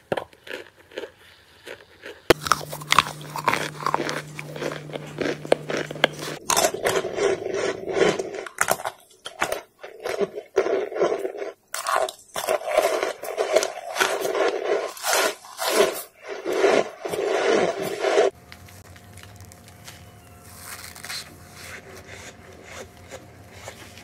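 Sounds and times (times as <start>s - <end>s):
loud crunching and chewing: 0.0s - 18.0s, 18.6s - 24.0s
faint hum: 2.3s - 8.6s, 17.3s - 24.0s.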